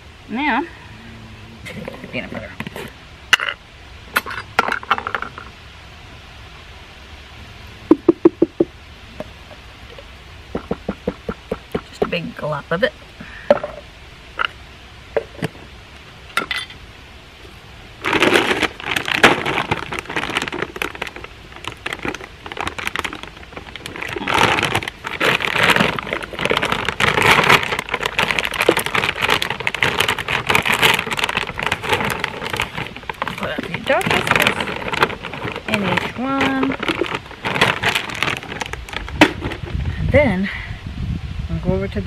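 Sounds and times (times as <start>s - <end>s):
plastic bag crinkling: 18.0s - 39.7s.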